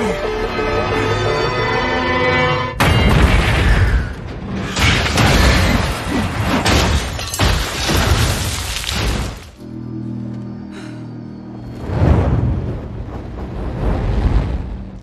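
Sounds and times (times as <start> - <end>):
film score music: 0.0 - 6.9.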